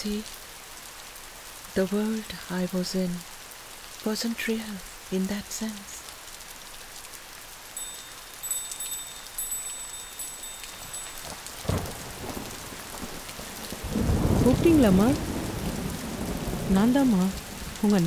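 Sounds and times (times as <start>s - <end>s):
heavy rain falling: 0.0s - 18.0s
high thin chiming tones: 7.8s - 11.8s
low rumble of thunder: 10.8s - 18.0s.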